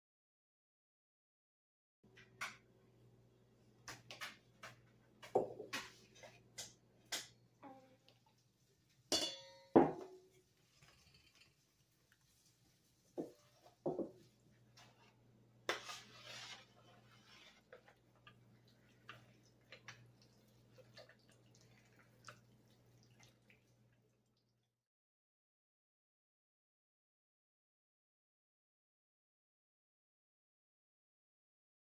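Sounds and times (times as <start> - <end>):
steel kitchenware clinking: 9.1 - 11.6.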